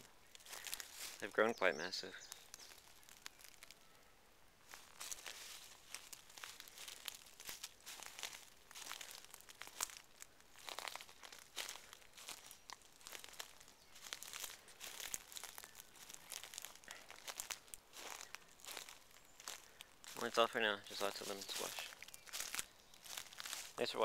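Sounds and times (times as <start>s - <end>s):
footsteps on wood-chip mulch: 0.4s - 3.8s, 4.6s - 24.0s.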